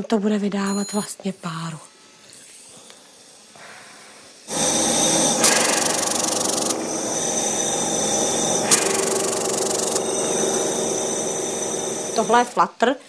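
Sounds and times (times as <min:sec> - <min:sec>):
nebulizer compressor humming: 0:03.8 - 0:12.6.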